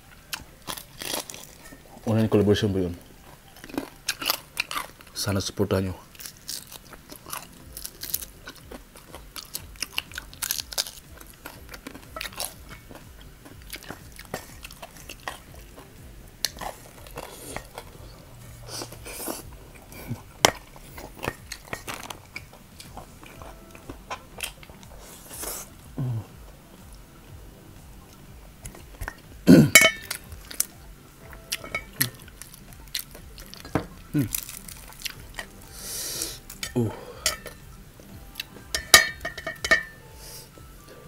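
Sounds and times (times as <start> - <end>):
crunchy bites and chewing: 0.3 - 1.8, 3.4 - 5.2, 6.0 - 18.0, 28.6 - 36.9.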